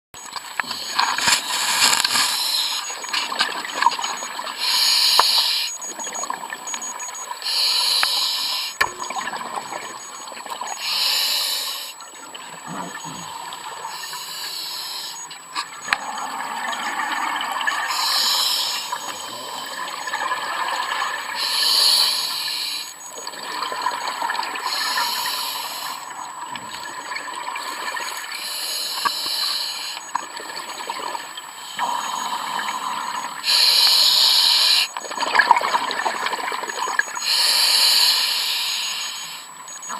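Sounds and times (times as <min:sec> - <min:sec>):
regulator hiss on inhalation: 0:00.7 - 0:03.0, 0:04.6 - 0:05.8, 0:07.4 - 0:08.8, 0:10.7 - 0:12.0, 0:13.9 - 0:15.2, 0:17.8 - 0:19.6, 0:21.4 - 0:23.0, 0:24.7 - 0:26.0, 0:28.3 - 0:30.0, 0:31.7 - 0:35.0, 0:37.2 - 0:39.5.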